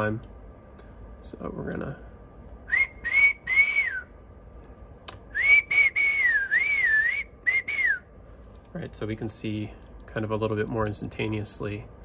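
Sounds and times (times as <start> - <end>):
person whistling: 2.7 - 4.1, 5.3 - 8.1.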